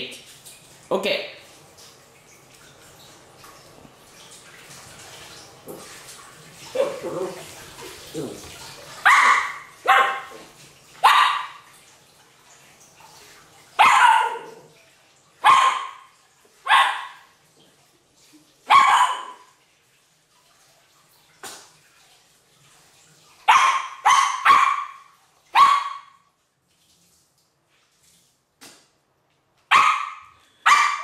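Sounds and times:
dog barking: 0:06.7 - 0:07.5, 0:09.0 - 0:10.4, 0:11.0 - 0:11.6, 0:13.8 - 0:14.7, 0:15.4 - 0:17.3, 0:18.7 - 0:19.5, 0:23.4 - 0:26.2, 0:29.7 - 0:31.0.

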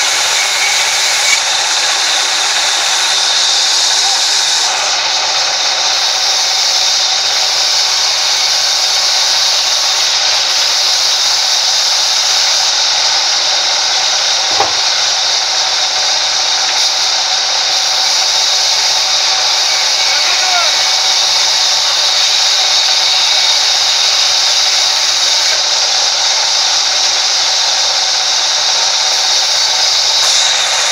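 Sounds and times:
band saw cutting log: 0:00.0 - 0:30.9
short knock: 0:14.5 - 0:14.9.

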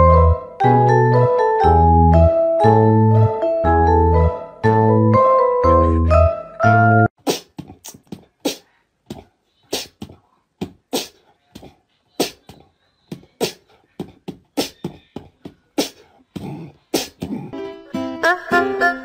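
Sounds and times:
beatbox clicks and thumps: 0:07.2 - 0:17.5.

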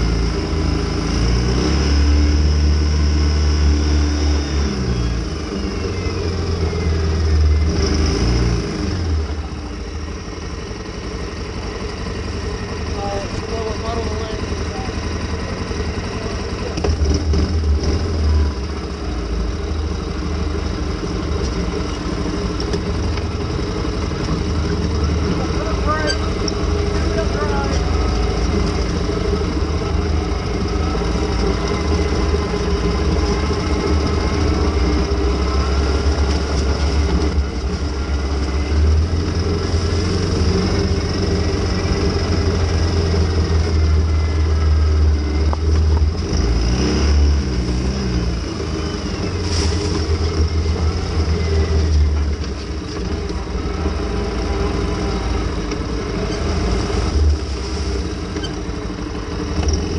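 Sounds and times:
atv engine revving: 0:00.0 - 0:59.9.

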